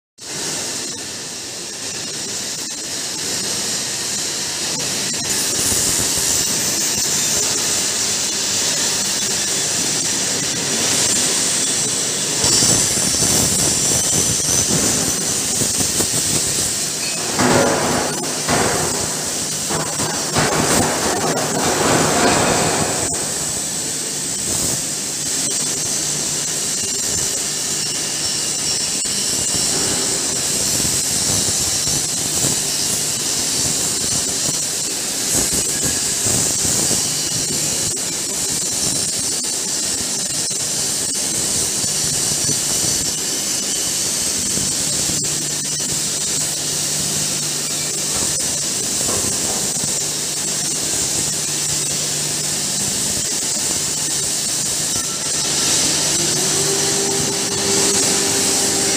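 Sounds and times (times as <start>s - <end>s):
machine hiss: 0.2s - 58.9s
sharp metal clanks: 10.8s - 24.9s.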